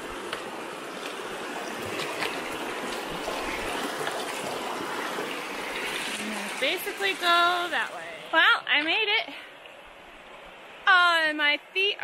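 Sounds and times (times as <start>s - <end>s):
creek flowing over rocks: 0.0s - 11.1s
shoes splashing through water: 1.0s - 7.0s.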